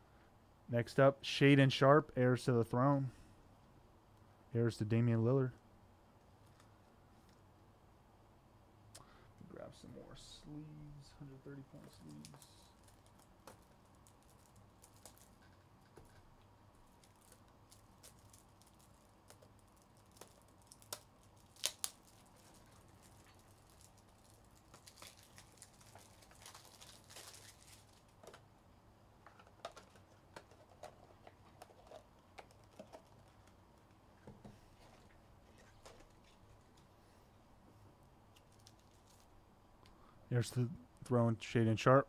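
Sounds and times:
plastic sleeve crinkling: 0:11.7 - 0:28.5, 0:29.2 - 0:33.9, 0:38.3 - 0:39.4.

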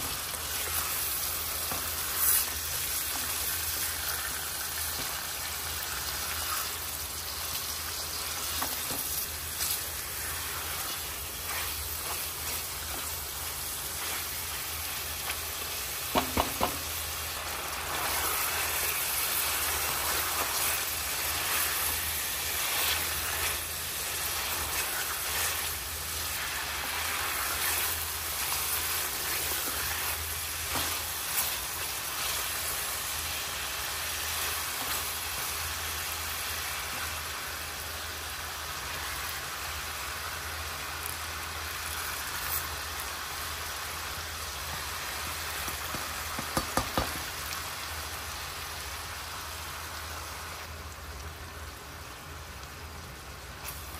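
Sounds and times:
spatula stirring: 0:00.0 - 0:35.8
meat sizzling in oil: 0:00.0 - 0:53.9.

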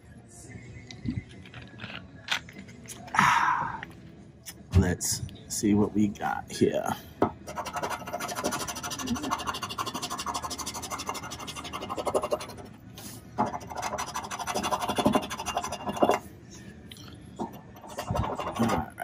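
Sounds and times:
coin scraping scratch card: 0:07.5 - 0:16.2, 0:17.4 - 0:19.0.

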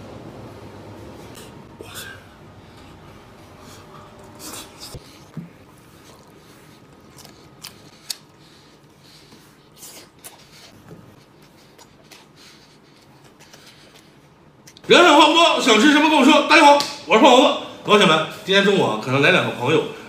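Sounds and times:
wet biting and chewing: 0:04.2 - 0:14.8.

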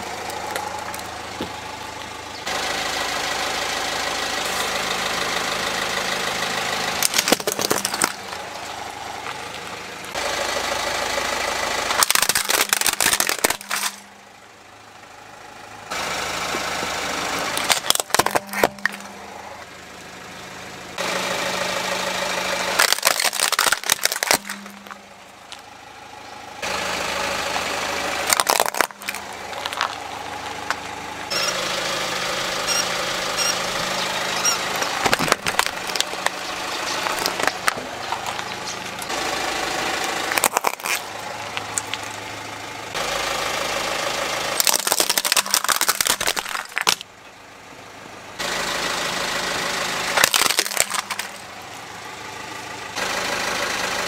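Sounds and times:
car engine idling: 0:00.0 - 0:54.0
toys crunching and cracking: 0:07.0 - 0:09.7, 0:11.9 - 0:14.1, 0:17.3 - 0:19.1, 0:22.6 - 0:25.7, 0:27.5 - 0:31.6, 0:32.7 - 0:39.4, 0:40.0 - 0:42.2, 0:44.6 - 0:47.1, 0:50.1 - 0:51.5.

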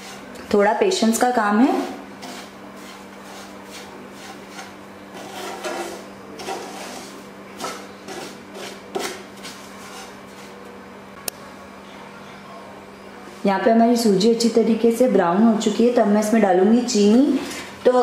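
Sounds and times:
wooden spatula scraping frying pan: 0:00.0 - 0:00.4, 0:01.6 - 0:10.6.

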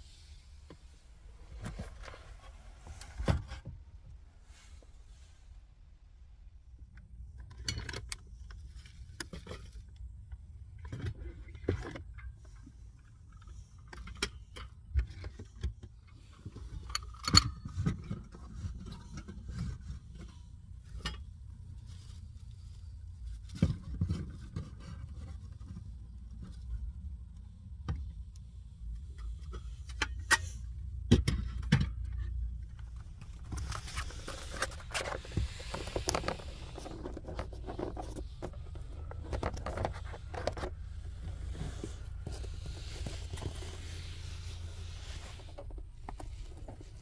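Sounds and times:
low steady rumble: 0:00.0 - 0:47.0.

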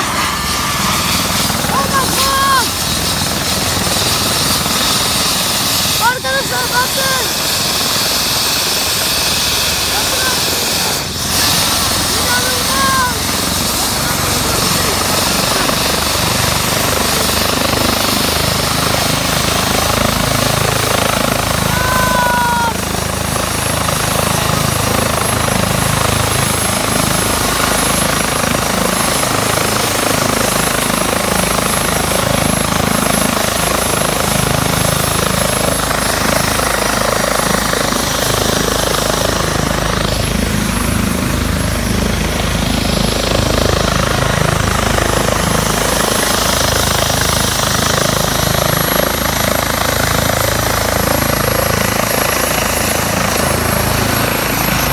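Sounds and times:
helicopter rotor and engine rush: 0:00.0 - 0:54.9
high turbine whine: 0:00.0 - 0:54.9.

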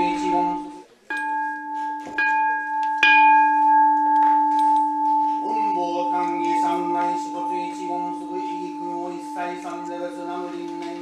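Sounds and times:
man chanting: 0:00.0 - 0:00.8, 0:05.4 - 0:11.0
bowl bell ringing: 0:00.0 - 0:11.0.

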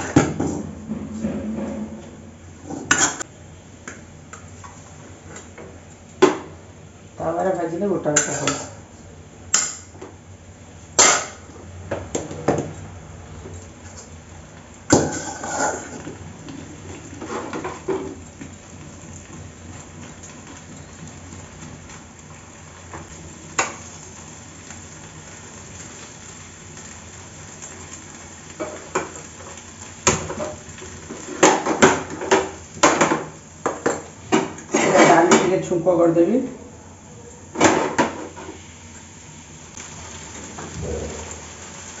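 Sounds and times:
vegetables frying hiss: 0:00.0 - 0:00.7, 0:02.3 - 0:42.0.

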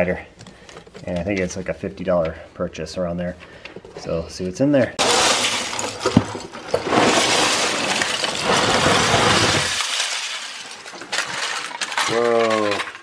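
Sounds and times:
plastic bricks clattering onto carpet: 0:05.0 - 0:13.0.

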